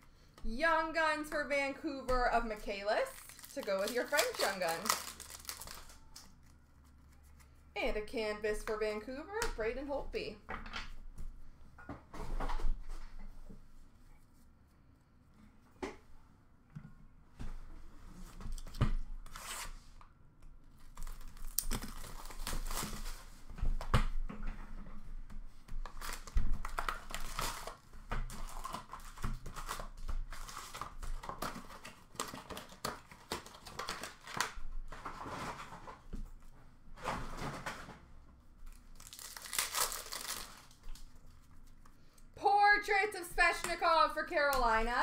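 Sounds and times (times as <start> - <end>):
wrappers tearing and crinkling: 3.0 - 7.1, 20.8 - 23.3, 25.9 - 34.6, 38.7 - 41.4.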